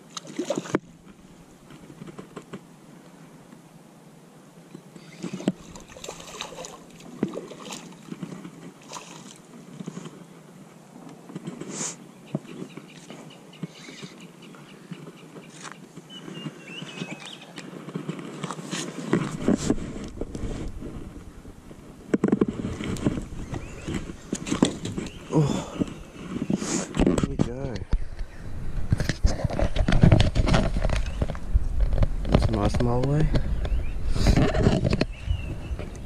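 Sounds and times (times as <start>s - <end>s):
clicks and knocks of fishing gear: 0.1s - 2.6s, 14.9s - 20.9s, 22.1s - 35.2s.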